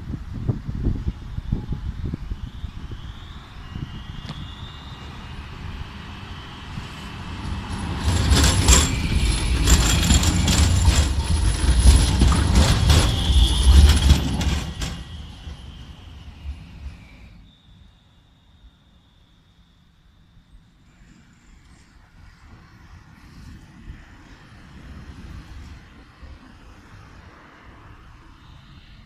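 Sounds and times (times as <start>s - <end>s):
tram passing: 0.0s - 19.1s
thin high whine: 0.8s - 22.6s
wheels clacking over rail joints: 6.0s - 17.2s.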